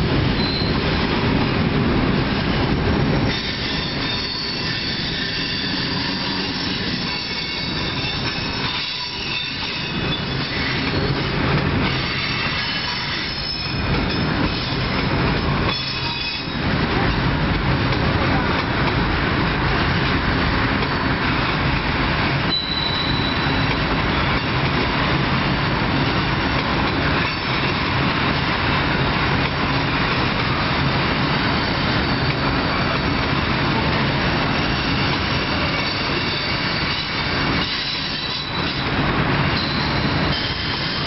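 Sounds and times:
freight train wheels rumbling: 0.0 - 41.0
high wheel squeal: 0.4 - 0.9, 3.3 - 11.3, 22.5 - 24.4, 31.4 - 33.0, 34.6 - 38.9, 39.5 - 41.0.

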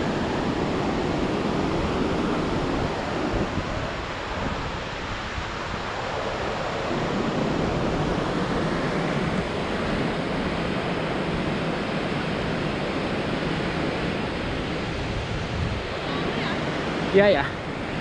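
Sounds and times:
waterfall and river rushing: 0.0 - 18.0.

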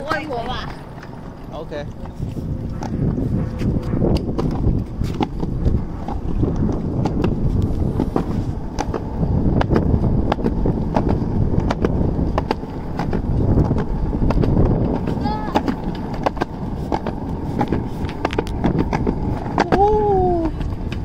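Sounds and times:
skateboard wheels clacking over joints: 0.0 - 21.0
skateboard wheels rolling on concrete: 0.0 - 21.0.

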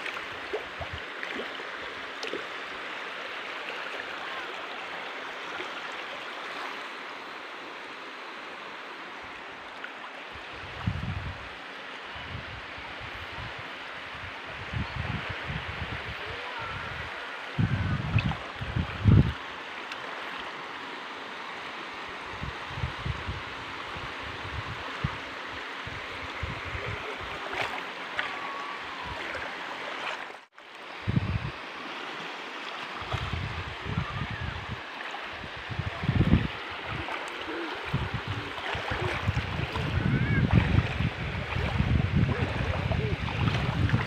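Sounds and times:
seawater washing and lapping: 0.0 - 7.0, 26.0 - 30.7, 31.8 - 44.0
wind buffeting microphone: 10.4 - 11.6, 12.2 - 19.4, 22.3 - 27.7, 31.0 - 31.6, 33.0 - 44.0.

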